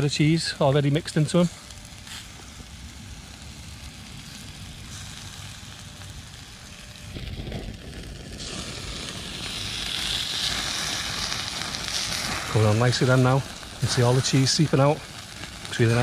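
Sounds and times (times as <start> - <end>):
burgers sizzling on charcoal grill: 0.0 - 16.0
low rumble: 1.7 - 14.3.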